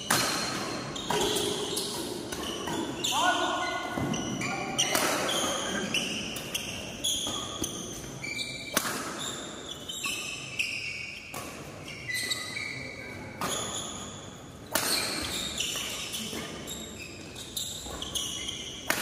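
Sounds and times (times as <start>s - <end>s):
rackets hitting shuttlecock: 0.0s - 3.1s, 3.9s - 9.6s, 13.3s - 16.7s, 17.4s - 19.0s
shoes squeaking on court: 0.0s - 19.0s.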